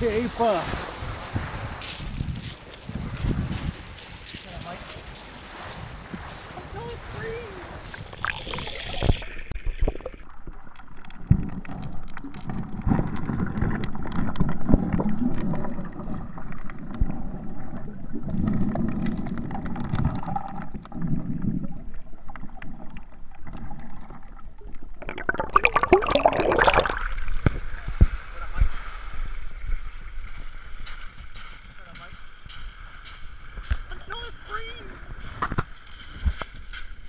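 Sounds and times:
underwater surf surges: 0.0 - 10.3
water splashing at surface: 0.0 - 17.2, 24.8 - 31.1
pebbles clicking underwater: 7.8 - 27.6.

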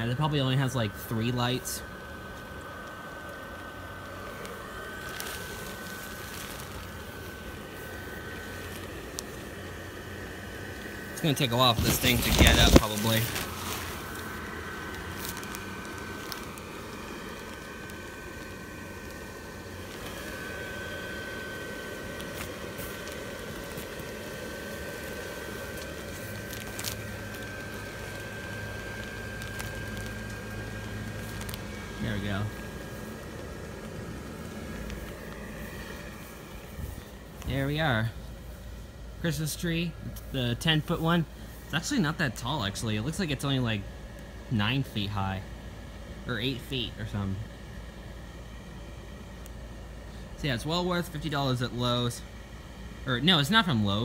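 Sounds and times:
blower fan whining: 0.0 - 54.0
fabric crinkling: 2.3 - 37.6.

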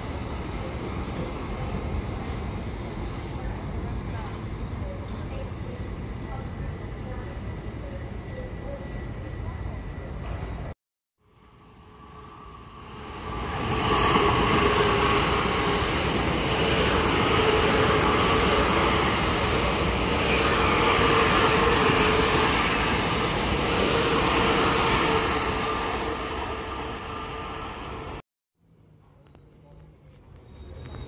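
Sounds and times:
train wheels rumbling on rail: 12.7 - 28.2.

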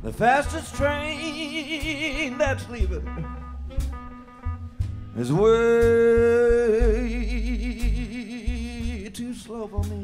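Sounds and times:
upright bass: 0.0 - 10.0
drum hits: 1.8 - 9.0.

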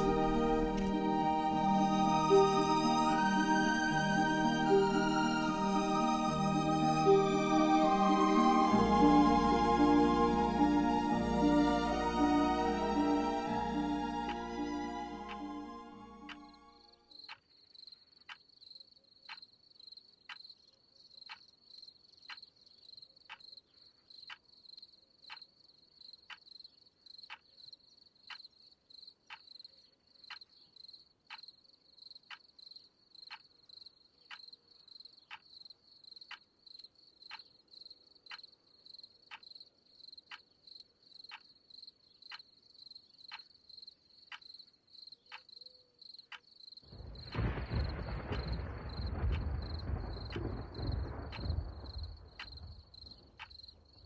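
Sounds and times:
crickets chirping: 12.3 - 54.0
soft ticking: 38.3 - 41.6.

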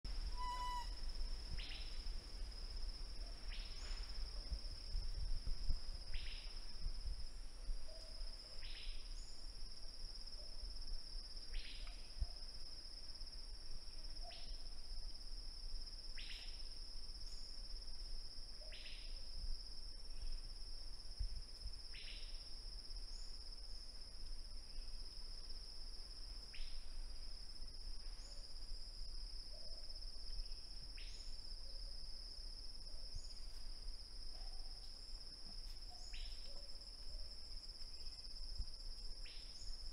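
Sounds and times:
faint low rumble: 0.1 - 14.0
high-pitched insect trill: 0.1 - 39.9.

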